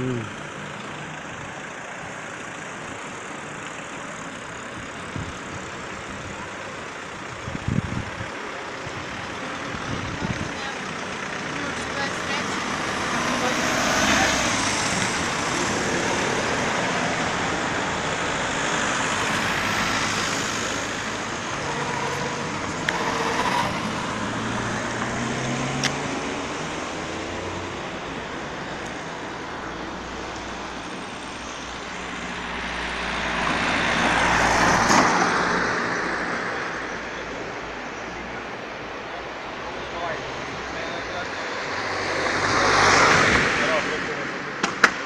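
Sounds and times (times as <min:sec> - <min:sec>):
cars driving past: 0:00.0 - 0:45.0.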